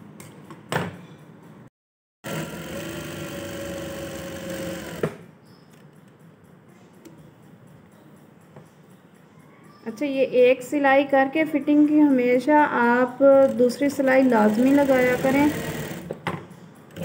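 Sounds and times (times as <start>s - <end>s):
sewing machine running: 2.2s - 5.2s, 13.3s - 16.2s.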